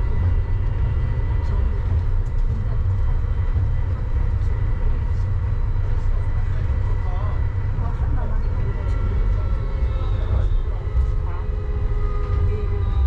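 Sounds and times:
faint constant whine: 0:00.0 - 0:13.0
train low rumble: 0:00.0 - 0:13.0.

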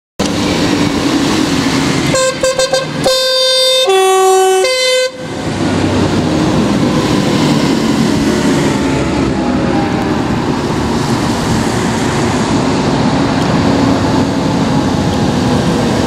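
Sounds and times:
road traffic: 0:00.2 - 0:16.0
tractors passing: 0:00.2 - 0:16.0
vehicle horn tooting: 0:02.1 - 0:05.3.

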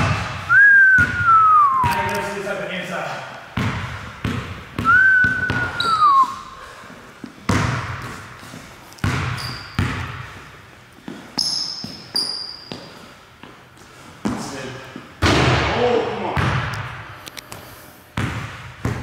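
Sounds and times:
basketball bouncing on wooden floor: 0:03.6 - 0:06.0, 0:07.4 - 0:10.4, 0:18.2 - 0:19.0
sneakers squeaking on court: 0:03.6 - 0:06.4, 0:07.2 - 0:14.5.

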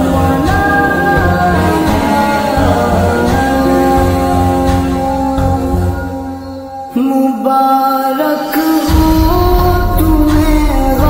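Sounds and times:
man singing long notes: 0:00.0 - 0:05.1
deep bass: 0:00.0 - 0:05.9, 0:08.9 - 0:11.0.

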